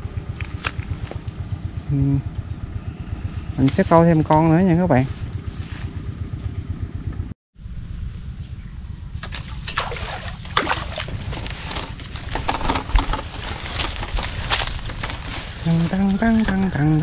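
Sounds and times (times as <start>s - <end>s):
wind rumbling on microphone: 0.0s - 17.0s
grass and reeds rustling: 3.2s - 6.1s, 9.2s - 17.0s.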